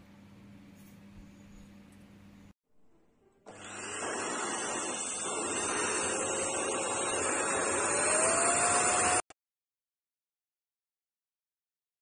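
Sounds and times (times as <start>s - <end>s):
vacuum cleaner motor running: 3.5s - 9.3s.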